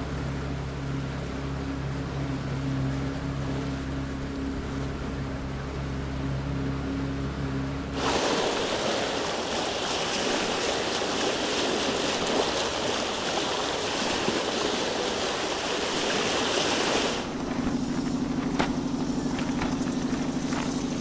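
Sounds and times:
pulsing engine hum: 0.0s - 21.0s
water rushing and spray: 7.9s - 21.0s
motor drone: 13.8s - 21.0s.

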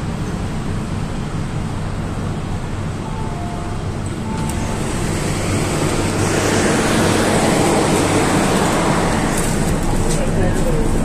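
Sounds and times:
metro train air-conditioning hum: 0.0s - 11.0s.

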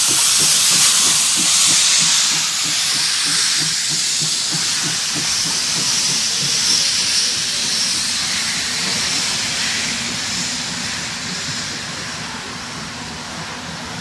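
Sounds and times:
train wheels clattering on rails: 0.0s - 14.0s.

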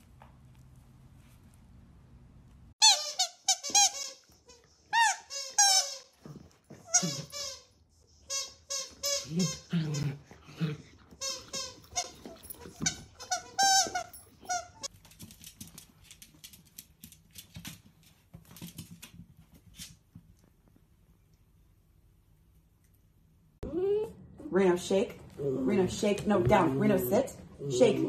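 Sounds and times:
squeaky toy squeaks: 2.8s - 6.1s, 6.8s - 7.7s, 8.3s - 9.7s, 11.2s - 14.9s
puppy growling: 9.2s - 11.2s
puppy claws clicking on tile: 14.9s - 19.2s.

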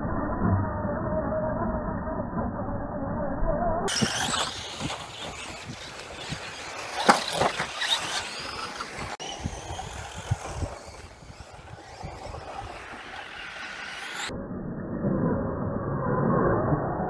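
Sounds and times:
electric motor whining: 3.9s - 14.3s
rc truck crashing: 3.9s - 14.3s.

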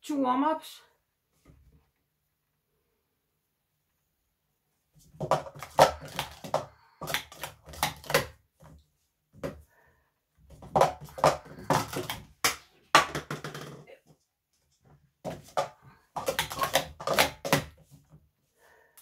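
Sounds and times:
plastic cups clacking on mat: 5.0s - 9.7s, 10.4s - 14.2s, 15.2s - 18.2s.

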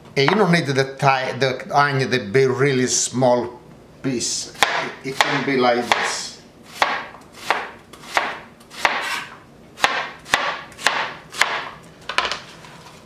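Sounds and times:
knife chopping onion on board: 4.6s - 11.8s.

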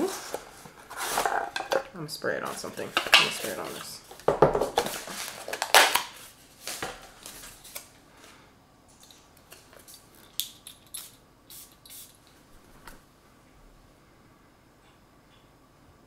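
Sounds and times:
paper packaging crinkling: 2.4s - 8.0s
perfume atomizer spraying: 10.8s - 12.3s.

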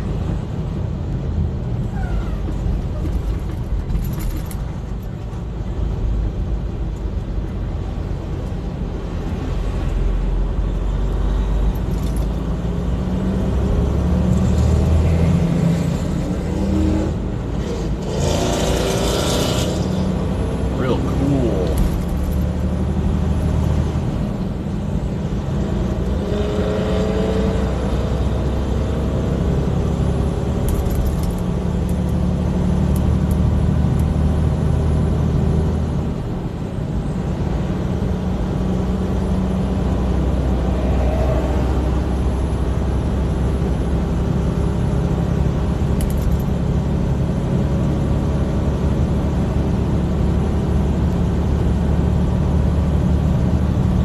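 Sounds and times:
road noise inside cab: 0.0s - 54.0s
truck diesel engine droning: 9.6s - 26.3s.

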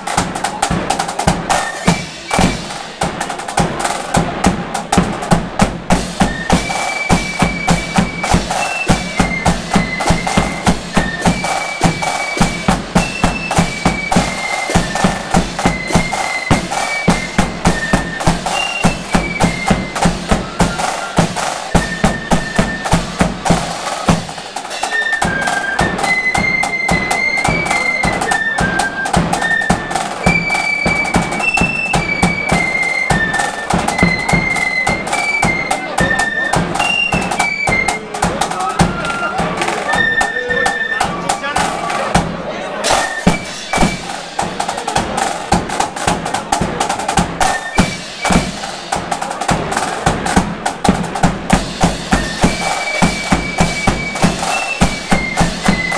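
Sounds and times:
high flute melody: 0.0s - 4.2s, 5.9s - 42.1s, 42.7s - 50.1s, 51.5s - 55.9s
bass drum: 0.0s - 24.4s, 43.2s - 55.9s
snare drums: 0.0s - 55.9s
clashing cymbals: 42.8s - 45.6s, 47.4s - 50.5s, 51.4s - 55.9s.

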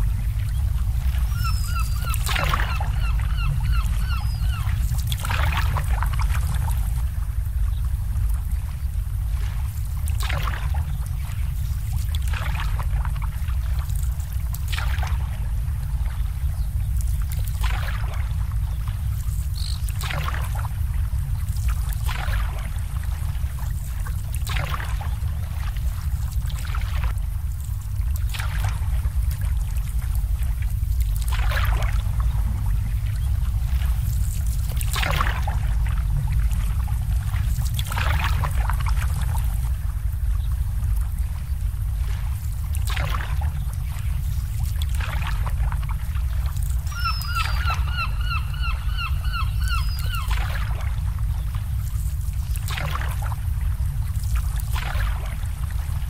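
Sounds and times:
steady low rumble: 0.0s - 56.0s
waves lapping against boat hulls: 0.0s - 56.0s.

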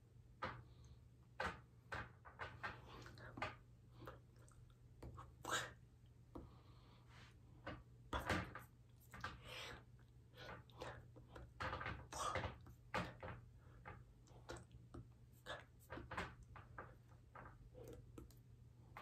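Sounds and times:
soft rustles and taps: 10.4s - 19.0s.

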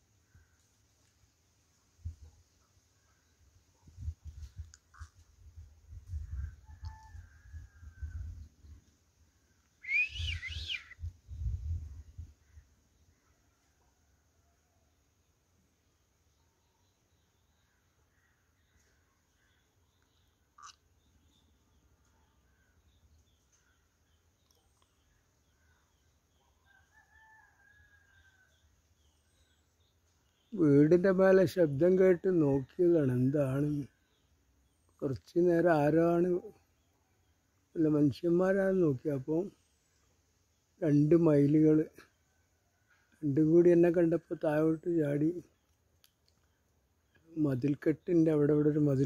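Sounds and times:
peafowl call: 9.8s - 11.0s
small birds chirping: 16.2s - 26.8s, 27.8s - 31.0s, 33.4s - 38.0s, 44.4s - 48.8s.

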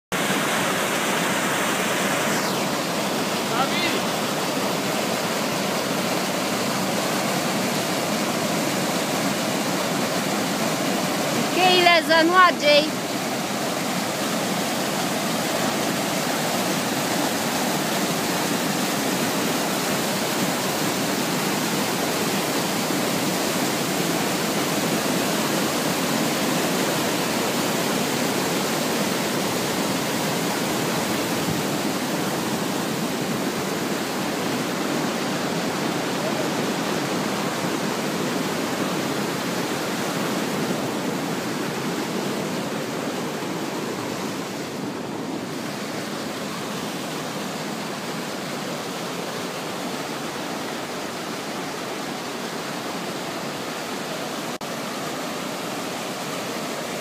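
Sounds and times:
stream rushing over boulders: 0.1s - 57.0s.

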